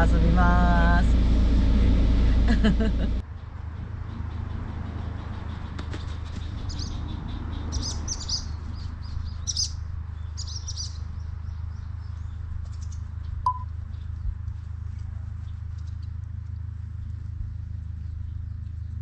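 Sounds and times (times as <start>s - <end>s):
low background rumble: 0.0s - 19.0s
birds chirping: 3.3s - 14.4s.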